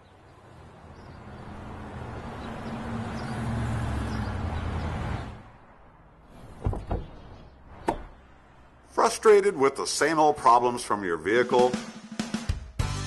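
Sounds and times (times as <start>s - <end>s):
traffic driving past: 0.0s - 9.4s.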